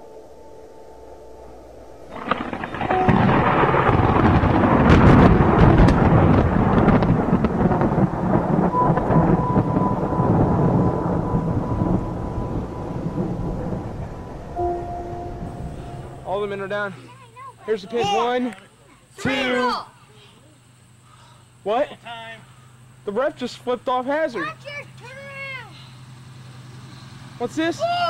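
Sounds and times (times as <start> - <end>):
thunder rumbling: 1.8 - 17.0.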